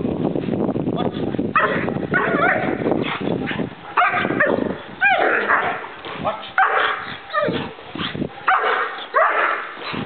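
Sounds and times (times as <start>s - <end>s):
dog barking aggressively: 1.6s - 10.0s.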